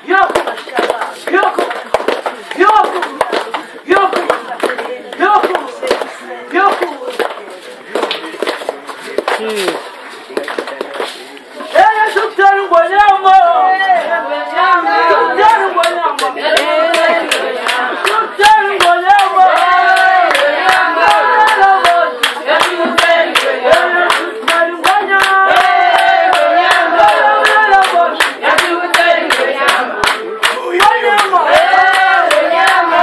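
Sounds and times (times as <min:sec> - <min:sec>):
hand-clapping: 0:00.2 - 0:06.1, 0:15.8 - 0:32.9
group singing: 0:12.7 - 0:33.0.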